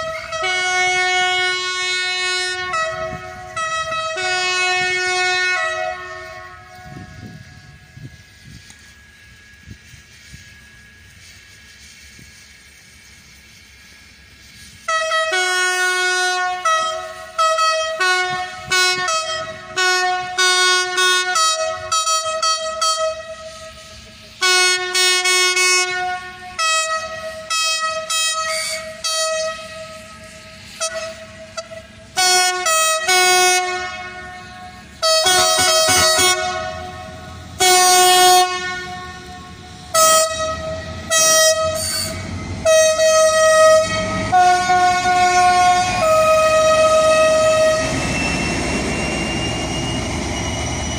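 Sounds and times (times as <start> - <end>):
locomotive horn blasts: 0.0 - 8.2, 14.8 - 50.5
low engine rumble: 28.8 - 50.9.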